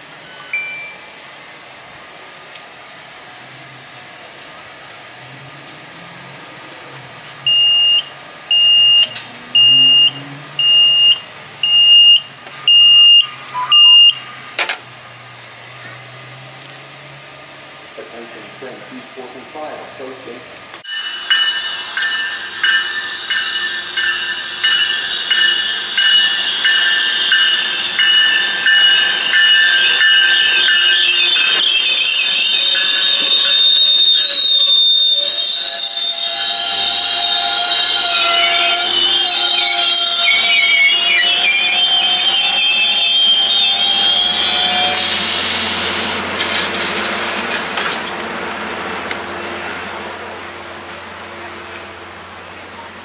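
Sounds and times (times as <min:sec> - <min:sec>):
train running and hissing: 0:00.0 - 0:53.0
ticket machine beeping: 0:00.2 - 0:01.1, 0:07.5 - 0:14.3.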